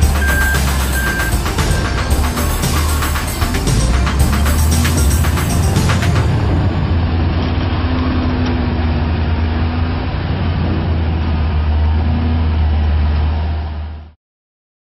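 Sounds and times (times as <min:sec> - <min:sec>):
diesel engine droning: 0:00.0 - 0:14.2
higher engine tone: 0:00.0 - 0:14.2.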